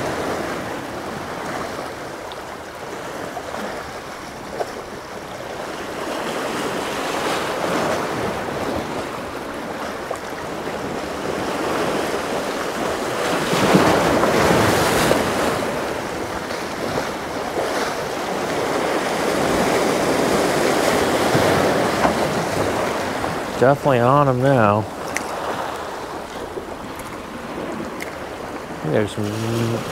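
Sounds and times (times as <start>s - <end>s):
waves washing against jetty: 0.0s - 29.9s
wind on microphone: 24.9s - 29.9s.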